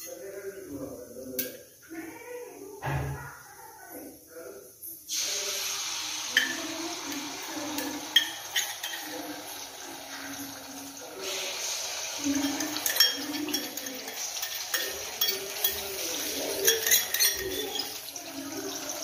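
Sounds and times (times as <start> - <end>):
oil sizzling: 4.7 - 19.0
metal spoon scraping a pan: 6.1 - 19.0
steel bowl clinking on pan: 6.3 - 9.8, 12.1 - 19.0.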